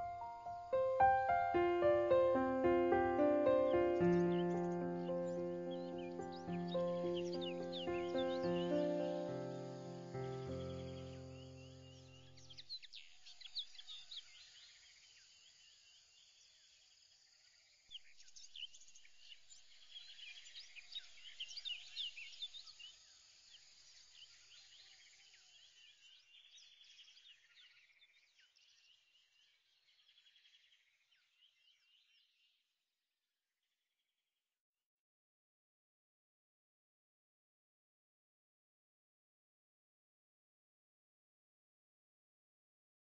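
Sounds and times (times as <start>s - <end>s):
small birds chirping: 0.0s - 16.6s, 17.9s - 32.6s.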